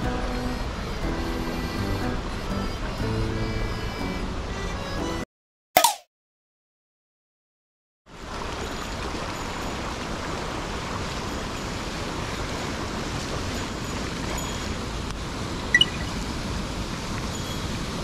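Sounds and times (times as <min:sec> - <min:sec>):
stream and small waterfall rushing: 0:08.1 - 0:18.0.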